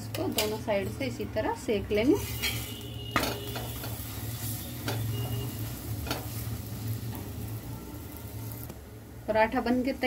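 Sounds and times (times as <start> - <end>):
flatbread sizzling in ghee: 0.0 - 10.0
metal spatula scrapes and taps: 2.3 - 4.1, 4.8 - 6.4.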